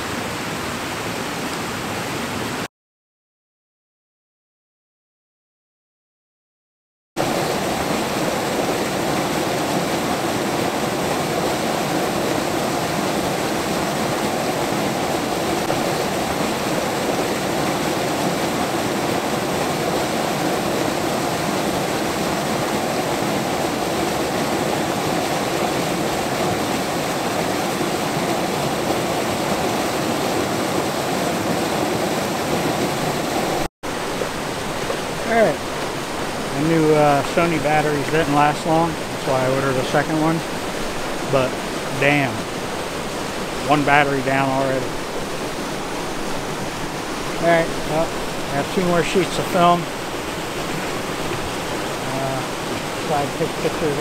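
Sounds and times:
waterfall rushing: 0:07.2 - 0:54.0.

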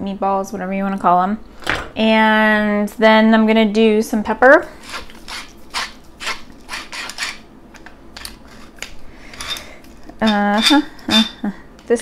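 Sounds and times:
woman's voice: 0:00.0 - 0:01.4, 0:02.0 - 0:04.8, 0:10.2 - 0:12.0
pepper mill grinding: 0:04.8 - 0:11.4.

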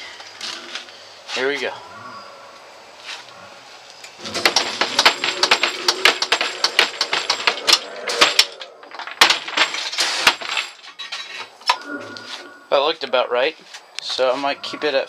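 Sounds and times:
wooden lid banging and rattling: 0:04.2 - 0:11.2.

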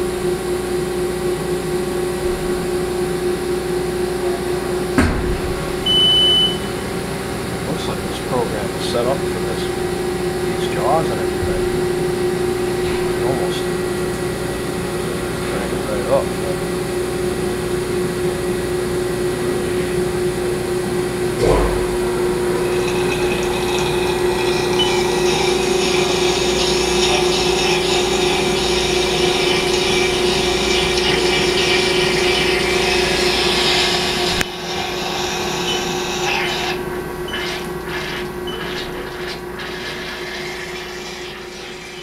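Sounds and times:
machine thump: 0:04.9 - 0:06.7, 0:21.4 - 0:23.0.

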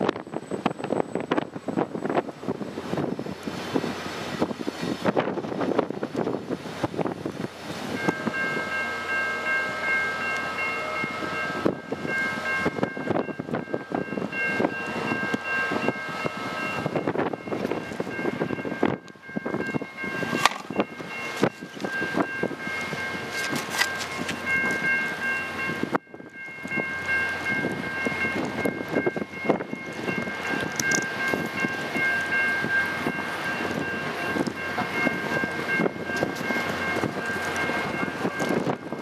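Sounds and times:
train rolling past: 0:00.0 - 0:39.0
wheels clicking over rail joints: 0:17.4 - 0:32.4.

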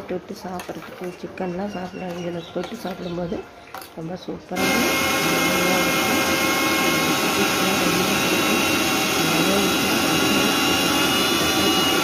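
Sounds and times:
mixer grinder running: 0:04.6 - 0:12.0.

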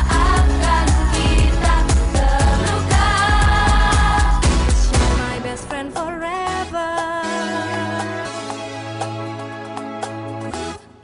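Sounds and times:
pop song with singing: 0:00.0 - 0:09.6.

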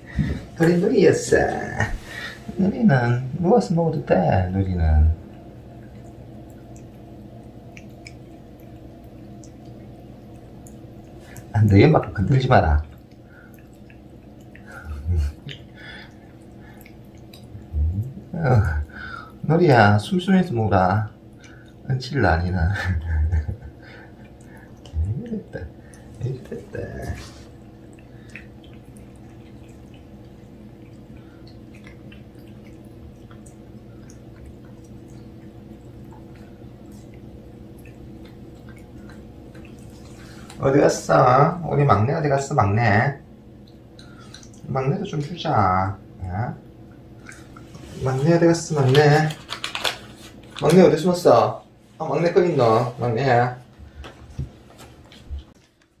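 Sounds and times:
steady low hum: 0:00.0 - 0:56.0
cat licking wet clicks: 0:05.2 - 0:20.5, 0:21.1 - 0:22.2, 0:22.8 - 0:40.7, 0:43.4 - 0:44.7.

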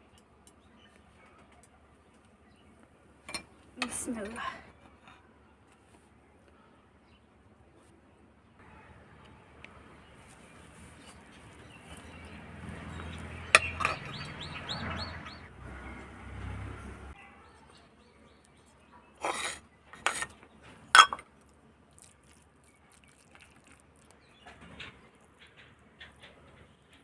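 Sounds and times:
small bird chirping: 0:11.0 - 0:15.5
utensils clinking on dishes: 0:13.5 - 0:14.3, 0:20.9 - 0:21.2
metal ladle scooping rice: 0:19.2 - 0:20.4.

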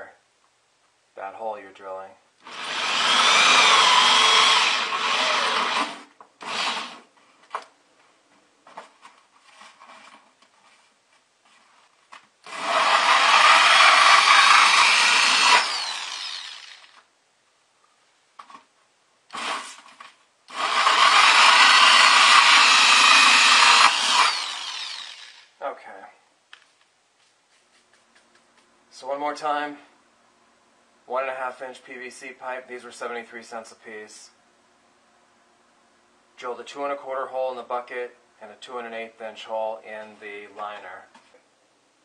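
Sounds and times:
drill cutting through plastic: 0:02.4 - 0:07.0, 0:12.4 - 0:17.0, 0:19.3 - 0:19.8, 0:20.5 - 0:25.6.

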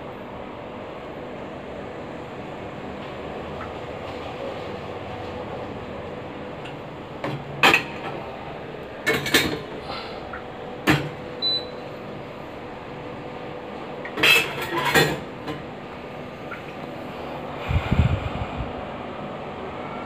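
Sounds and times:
steel dishes clinking and clattering: 0:14.1 - 0:15.3.

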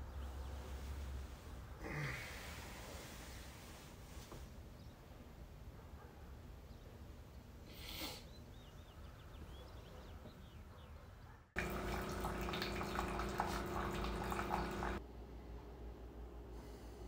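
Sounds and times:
coffee maker pump humming: 0:11.6 - 0:15.0
coffee pouring into mug: 0:11.6 - 0:15.0.

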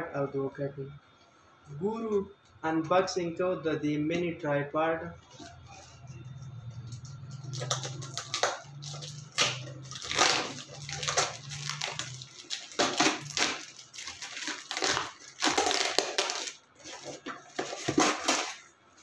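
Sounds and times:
plastic wrap and tape tearing: 0:05.2 - 0:18.8.

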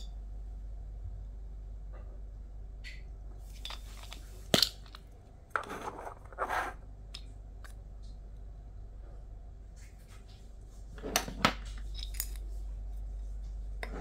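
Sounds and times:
plastic parts rubbing and scraping: 0:03.4 - 0:06.8.

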